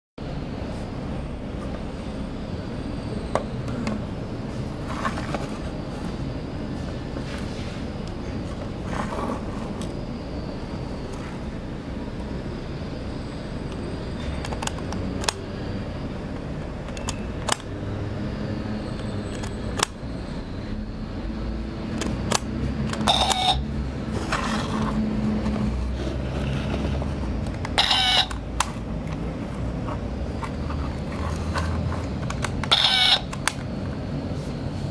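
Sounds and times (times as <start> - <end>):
toy camera clicking: 22.0 - 23.6, 32.2 - 33.6
bright ringing shutter bursts: 23.0 - 23.7.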